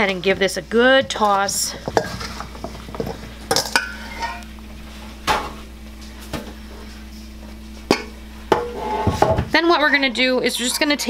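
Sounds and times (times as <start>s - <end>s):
florets scraping in bowl: 8.7s - 9.2s, 10.4s - 11.0s.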